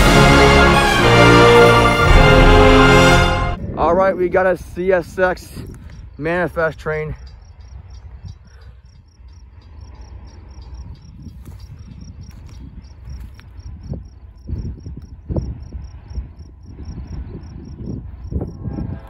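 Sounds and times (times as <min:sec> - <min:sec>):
insect chirping: 0:05.1 - 0:18.8.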